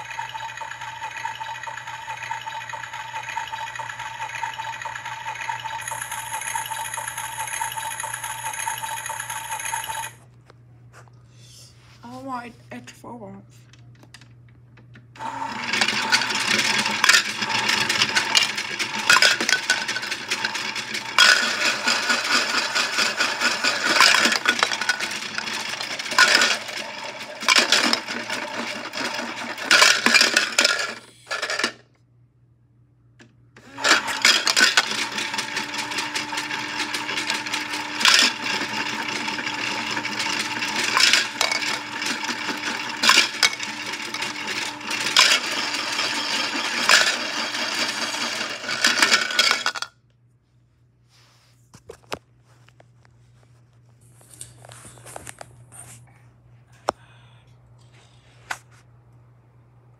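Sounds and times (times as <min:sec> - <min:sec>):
toy washing machine motor humming: 0:00.0 - 0:10.2, 0:15.0 - 0:31.8, 0:33.6 - 0:49.9.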